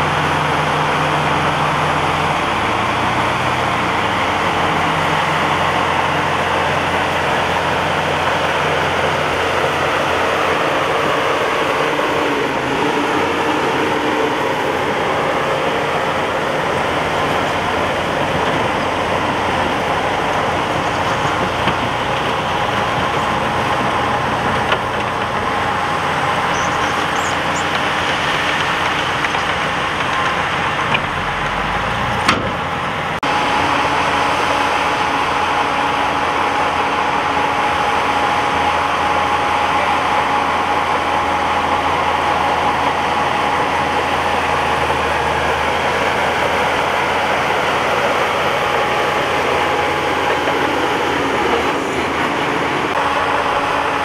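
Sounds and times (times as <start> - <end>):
bulldozer engine running: 0.0 - 54.0
dump truck diesel engine: 0.0 - 54.0.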